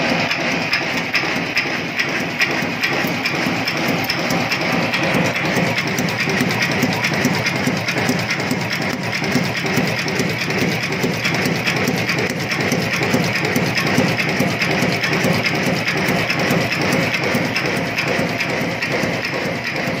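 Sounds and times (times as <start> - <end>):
machine clattering rapidly: 0.0 - 20.0.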